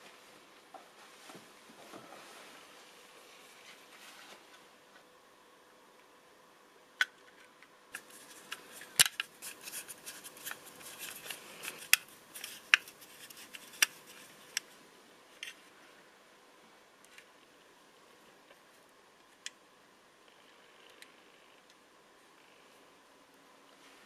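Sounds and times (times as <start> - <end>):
scraping and rustling: 1.0 - 4.6, 8.0 - 14.6.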